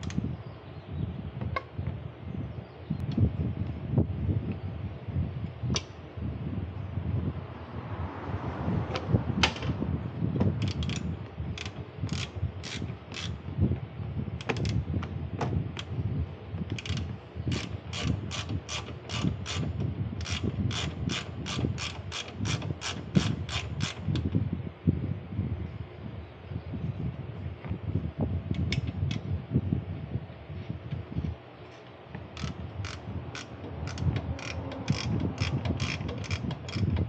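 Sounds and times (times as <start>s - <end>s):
ratchet wrench clicking: 10.6s - 13.4s, 16.7s - 24.3s, 32.3s - 37.0s.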